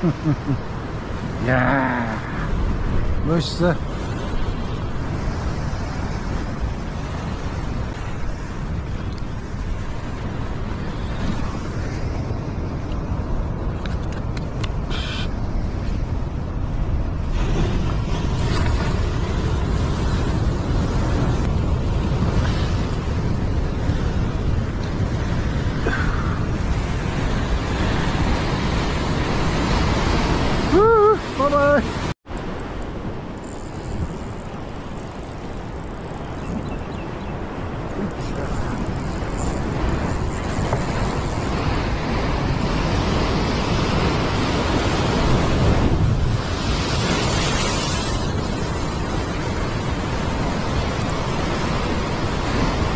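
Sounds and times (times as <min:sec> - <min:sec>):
surf washing over rocks: 0:00.0 - 0:52.9
wind rumbling on microphone: 0:00.0 - 0:52.9
waves breaking against rocks: 0:33.4 - 0:52.9.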